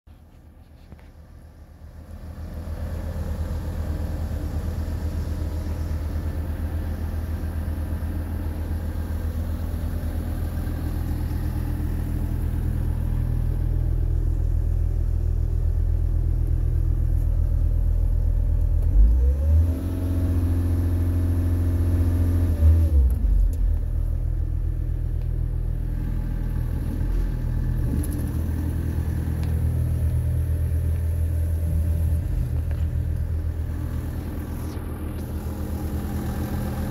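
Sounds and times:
diesel engine starting and idling: 0:00.2 - 0:36.9
diesel engine revving: 0:18.7 - 0:36.9.

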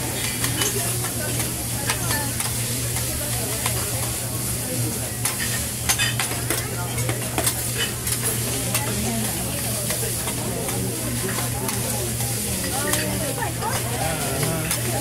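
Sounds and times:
rice sizzling on a griddle: 0:00.0 - 0:15.0
metal spatula scraping and tapping: 0:00.2 - 0:04.1, 0:05.2 - 0:08.9.

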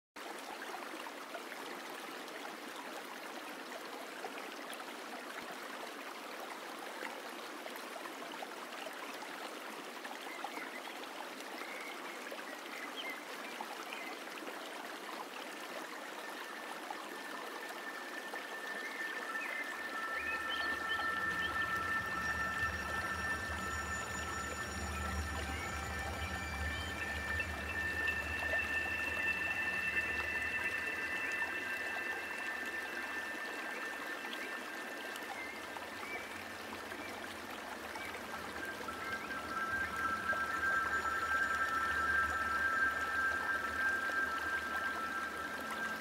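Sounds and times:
river water running over stones: 0:00.2 - 0:46.0
low hum: 0:17.1 - 0:46.0
steady tones: 0:17.8 - 0:46.0.

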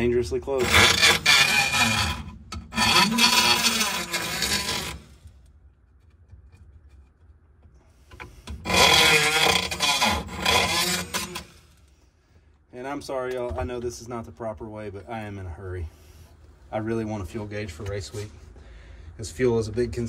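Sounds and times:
tool scraping cutting into panel: 0:00.6 - 0:05.2, 0:08.1 - 0:11.7.

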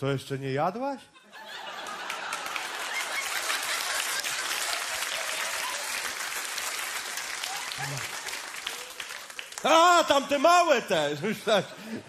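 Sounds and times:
large audience applauding: 0:01.6 - 0:11.0.

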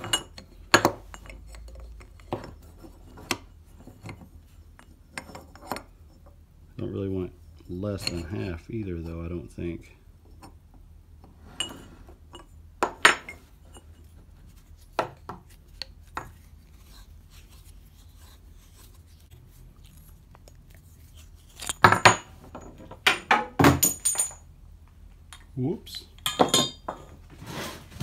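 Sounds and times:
metal tubes clinking and knocking: 0:00.0 - 0:06.4, 0:07.5 - 0:09.1, 0:21.4 - 0:24.5, 0:25.3 - 0:27.2.

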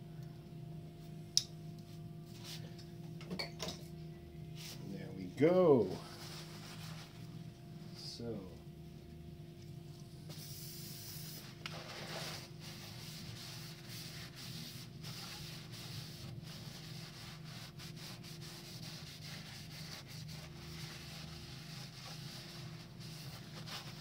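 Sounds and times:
towel rubbing inside cylinder bore: 0:10.3 - 0:24.0.

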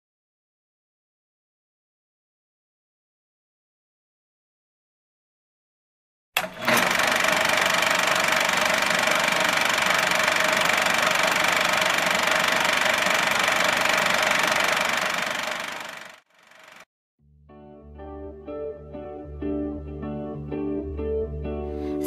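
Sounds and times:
film projector clatter and whir: 0:06.4 - 0:16.9.

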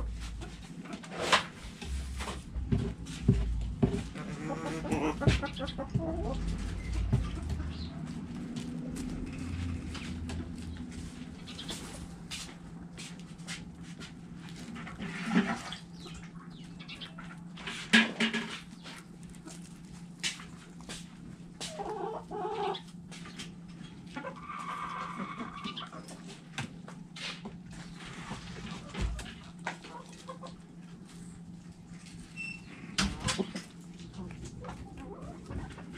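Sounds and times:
chickens clucking: 0:00.0 - 0:12.9, 0:13.5 - 0:35.9
steady low hum: 0:00.0 - 0:24.5.

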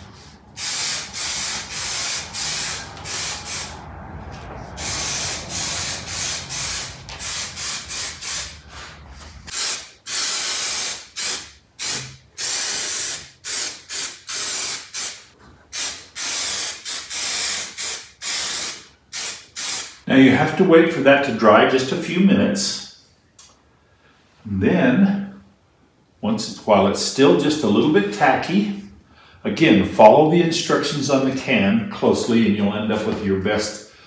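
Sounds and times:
aerosol spray can hissing: 0:00.5 - 0:03.8, 0:04.8 - 0:08.6, 0:09.5 - 0:20.0.

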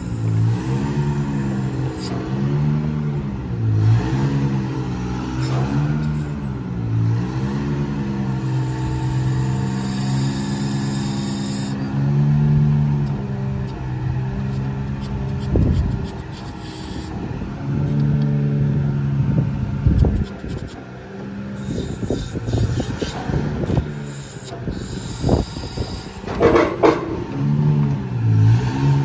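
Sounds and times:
truck engine running: 0:00.0 - 0:29.0
knocks: 0:26.3 - 0:27.2.

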